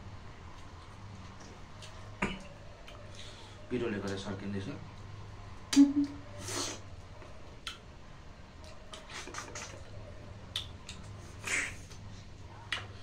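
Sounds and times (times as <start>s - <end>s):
low steady hum: 0.0s - 13.0s
wet chewing and lip smacks: 8.6s - 12.1s.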